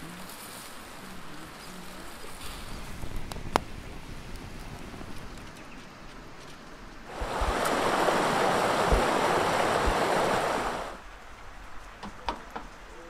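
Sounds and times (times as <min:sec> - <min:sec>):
background ambience: 0:05.2 - 0:12.0
rushing creek water: 0:07.0 - 0:13.0.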